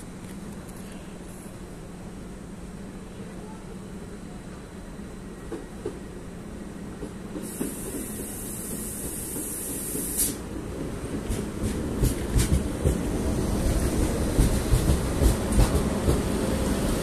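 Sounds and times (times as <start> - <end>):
train pulling into platform: 0.0 - 17.0
train wheels clacking over track: 7.0 - 17.0
high hiss: 7.3 - 10.5.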